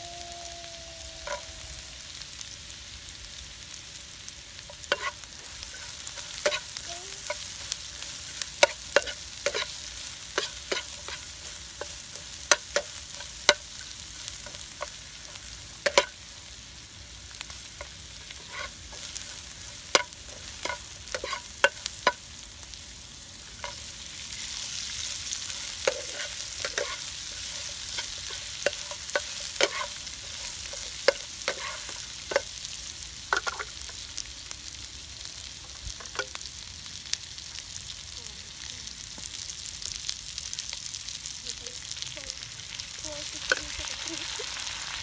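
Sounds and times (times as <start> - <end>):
food sizzling in a frying pan: 0.0 - 45.0
metal spatula scraping a pan: 4.8 - 13.7, 17.8 - 22.2, 25.4 - 32.5.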